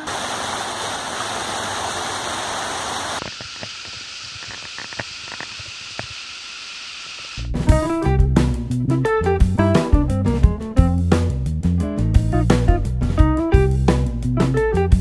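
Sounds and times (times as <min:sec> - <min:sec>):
waterfall rushing over rocks: 0:00.0 - 0:07.4
music with guitar and drums: 0:07.5 - 0:15.0.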